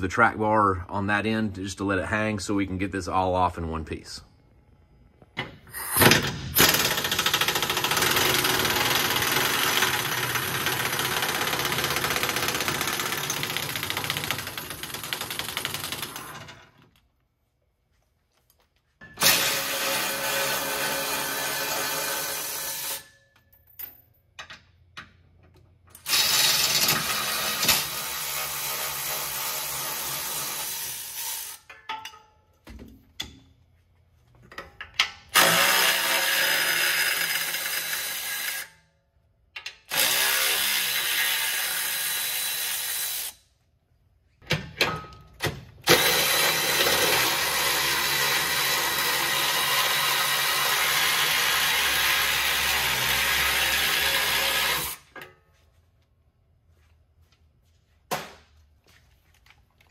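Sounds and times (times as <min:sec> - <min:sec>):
electric ratchet spinning nuts: 0:06.0 - 0:16.5, 0:19.2 - 0:23.1, 0:26.0 - 0:31.7, 0:35.4 - 0:38.7, 0:39.7 - 0:43.5, 0:45.9 - 0:55.2.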